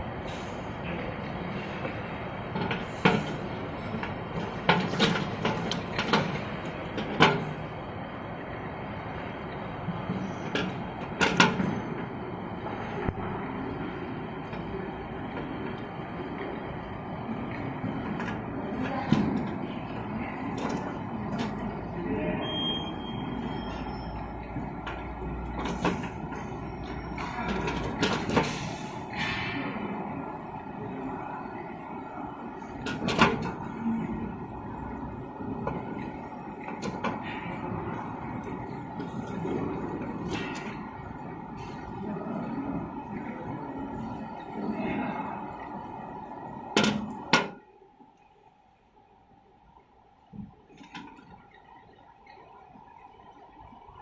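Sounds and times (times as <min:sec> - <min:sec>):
conveyor machine hum: 0:00.0 - 0:54.0
machine clacks and knocks: 0:01.8 - 0:07.7, 0:09.9 - 0:12.2.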